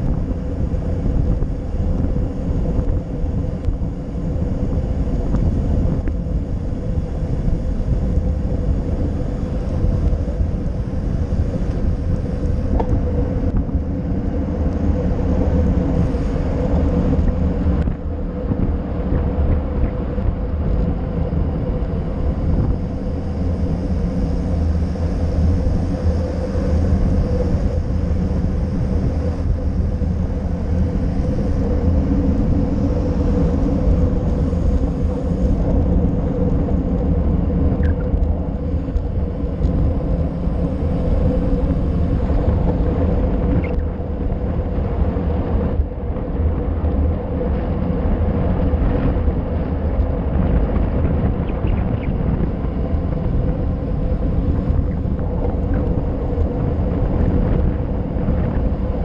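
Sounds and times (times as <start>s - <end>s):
wind and road rumble: 0.0s - 59.0s
faint steady tone: 19.9s - 45.4s.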